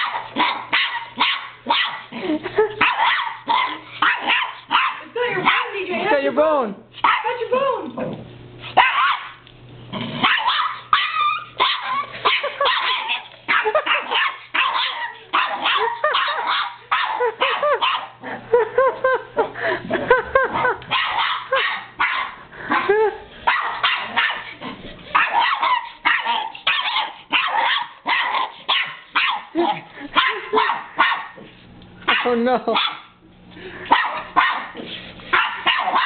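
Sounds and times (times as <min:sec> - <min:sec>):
small dog yapping: 0:00.0 - 0:02.0, 0:02.8 - 0:05.7, 0:07.0 - 0:07.3, 0:08.8 - 0:09.4, 0:10.2 - 0:18.1, 0:20.9 - 0:22.9, 0:23.5 - 0:24.5, 0:25.1 - 0:29.5, 0:30.2 - 0:31.4, 0:32.1 - 0:33.1, 0:33.9 - 0:36.0.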